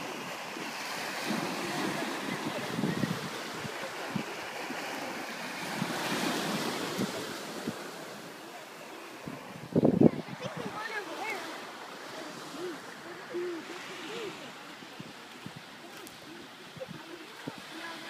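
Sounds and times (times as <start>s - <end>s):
surf washing up a sandy shore: 0.0s - 18.0s
wind buffeting microphone: 1.2s - 4.7s, 9.2s - 11.3s.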